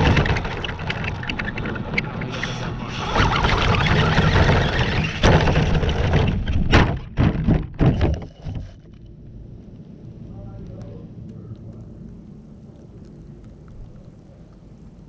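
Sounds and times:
rc car running: 0.0s - 6.6s
rc car knocking as it tumbles: 0.0s - 8.8s.

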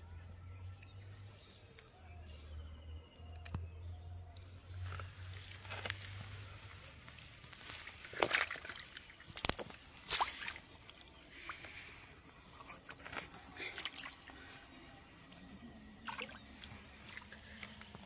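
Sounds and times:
hands squelching in wet sand: 5.1s - 14.8s
water dripping: 7.1s - 11.2s, 16.0s - 18.0s
sharp wet slaps: 7.5s - 11.1s.

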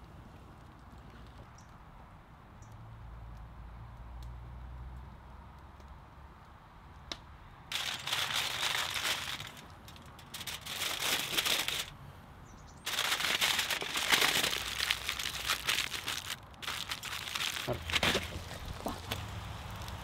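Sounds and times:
aluminium foil crinkling: 7.7s - 11.9s, 12.8s - 20.0s.

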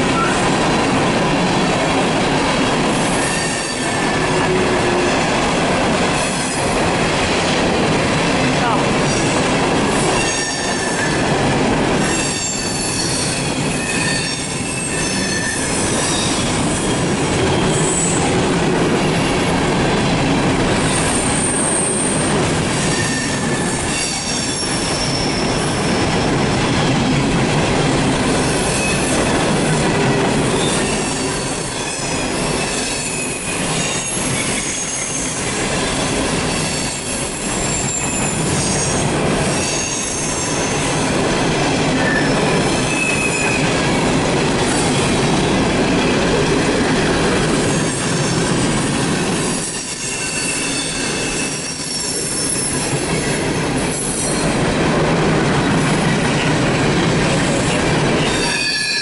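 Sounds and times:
wheels rumbling on rail: 0.0s - 59.0s
high-pitched wheel squeals: 10.2s - 11.2s, 12.0s - 18.2s, 22.8s - 26.0s, 49.6s - 52.8s, 58.2s - 59.0s.

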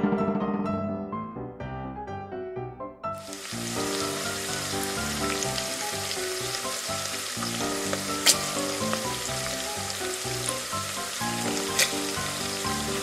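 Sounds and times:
piano background music: 0.0s - 13.0s
egg sizzling in a frying pan: 3.2s - 13.0s.

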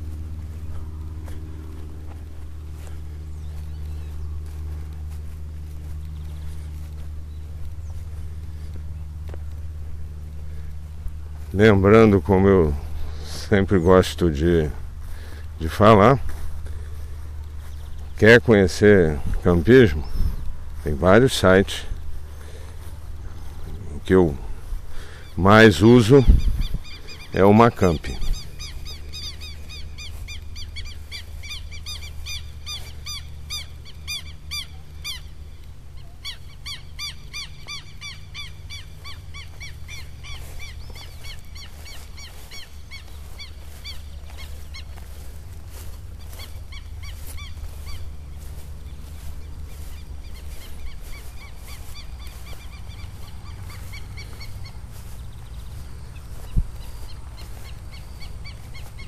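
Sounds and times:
low rumble: 0.0s - 11.6s
bird chirping rapidly: 25.0s - 59.0s.

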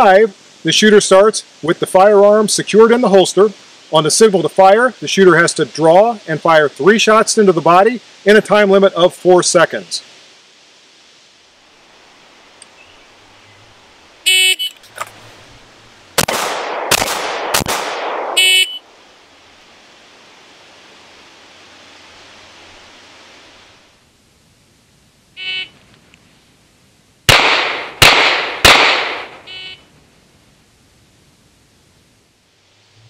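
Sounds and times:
pistol shots: 16.2s - 18.5s, 27.3s - 29.4s
electronic timer beep: 29.5s - 29.8s.

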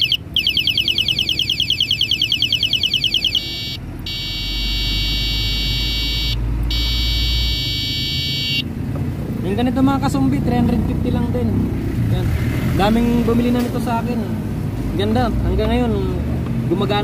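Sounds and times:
electronic horn warbling: 0.0s - 8.6s
electronic horn steady beep: 0.0s - 8.7s.

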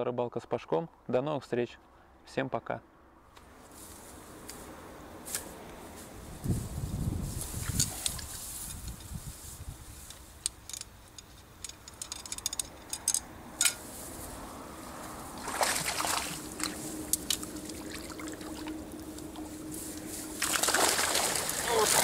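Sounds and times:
fishing net clicks and rustles: 7.3s - 14.3s, 15.0s - 22.0s
water splashing off mesh: 15.4s - 16.8s, 20.3s - 22.0s.

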